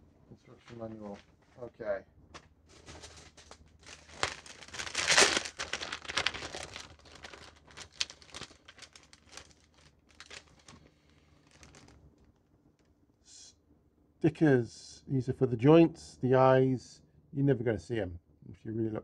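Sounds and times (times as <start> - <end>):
packaging crinkling and rustling: 2.7 - 12.4.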